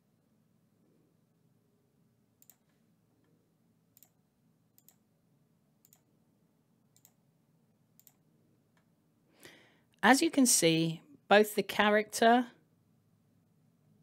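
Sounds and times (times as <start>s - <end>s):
computer mouse clicks: 2.4s - 2.8s, 3.9s - 4.2s, 4.8s - 5.0s, 5.8s - 6.1s, 6.9s - 7.2s, 8.0s - 8.9s.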